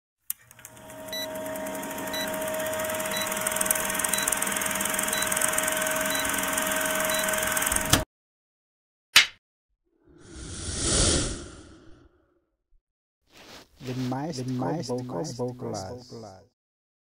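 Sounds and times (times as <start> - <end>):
film projector whirring: 0.3 - 8.0.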